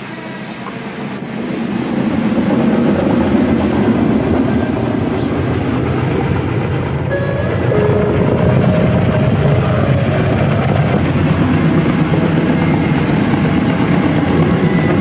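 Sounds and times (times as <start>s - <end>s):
steady rumbling: 0.8s - 15.0s
faint held notes: 6.9s - 13.3s.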